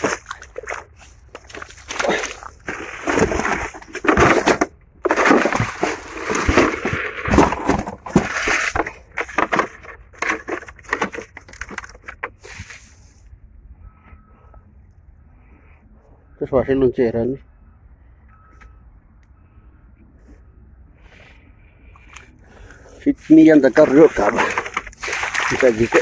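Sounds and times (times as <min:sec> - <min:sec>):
footsteps in wet mud: 0:00.0 - 0:03.9, 0:23.2 - 0:26.0
scuffing and rustling plants: 0:23.0 - 0:26.0.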